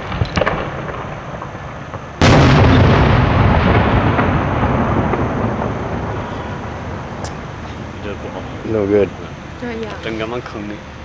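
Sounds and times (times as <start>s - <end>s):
sharp firework pops: 0.0s - 6.5s, 7.2s - 7.5s
firework boom echoing: 0.0s - 8.6s.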